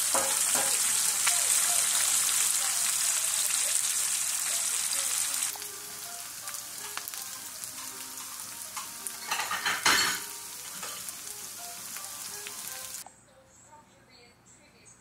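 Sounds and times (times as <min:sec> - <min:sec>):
onions and peppers sizzling in oil: 0:00.0 - 0:13.0.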